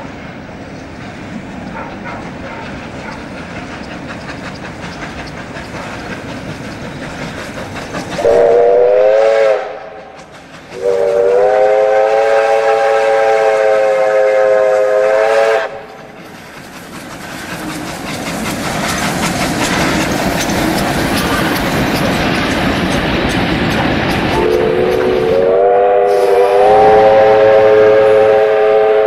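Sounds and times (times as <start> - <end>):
steam train rolling past: 0.0 - 29.0
steam whistle blasts: 8.2 - 10.2, 10.8 - 15.9, 24.3 - 29.0.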